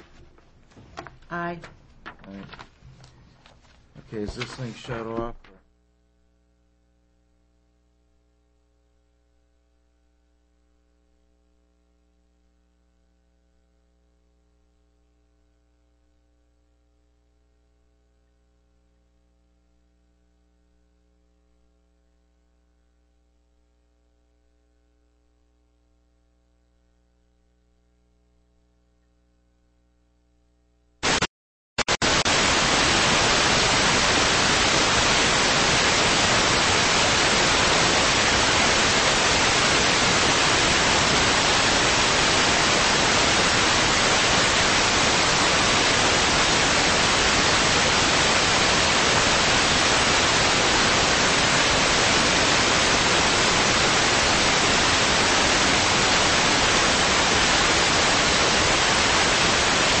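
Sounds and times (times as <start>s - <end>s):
loud static hiss: 0.0s - 5.6s, 31.0s - 60.0s
short static burst: 31.0s - 60.0s.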